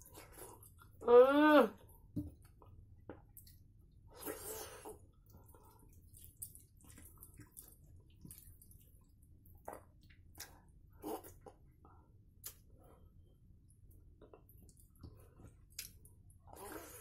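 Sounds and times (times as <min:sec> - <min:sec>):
sticky squishes of mixing food: 0:02.0 - 0:11.8.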